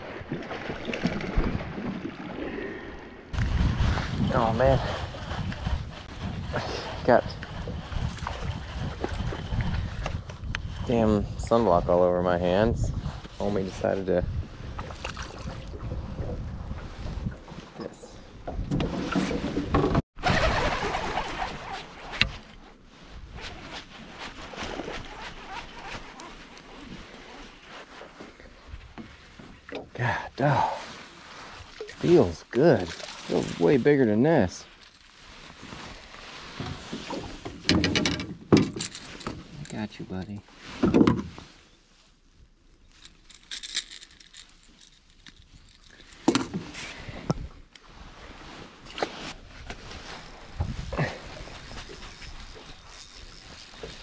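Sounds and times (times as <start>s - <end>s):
handling rustling and clicks: 36.9s - 40.0s, 42.7s - 46.9s, 48.9s - 54.0s
fishing reel ticking and rattling: 43.0s - 46.2s, 50.0s - 54.0s
fishing reel click: 52.1s - 54.0s.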